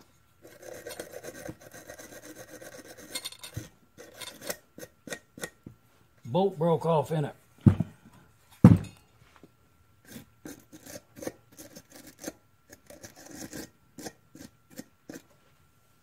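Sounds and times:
metal-on-metal scrapes: 0.0 - 5.6
thump: 7.6 - 7.9.

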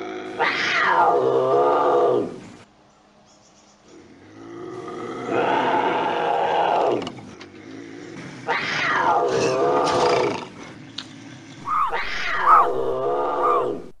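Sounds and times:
bobcat yowling: 11.6 - 14.0.

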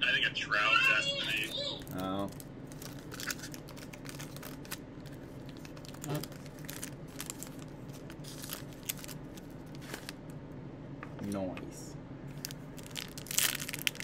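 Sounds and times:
foil wrapper crinkling and tearing: 1.8 - 10.3, 12.3 - 14.0.

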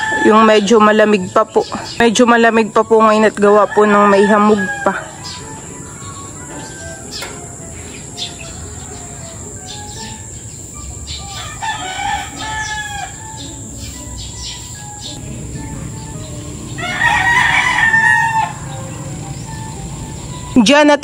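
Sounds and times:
roosters crowing: 0.0 - 20.6
small birds chirping: 0.0 - 21.0.

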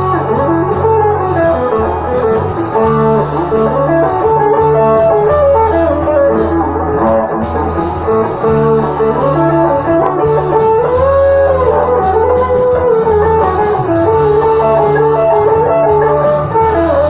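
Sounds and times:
backing track with bass line: 0.0 - 17.0
electric guitar lead melody: 0.0 - 17.0.

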